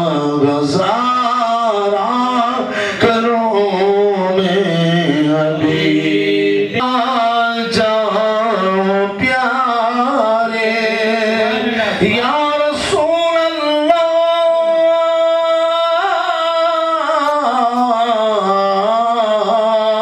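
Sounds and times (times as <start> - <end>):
man singing into microphone: 0.0 - 20.0
singer breathing: 2.6 - 3.1, 11.7 - 12.0.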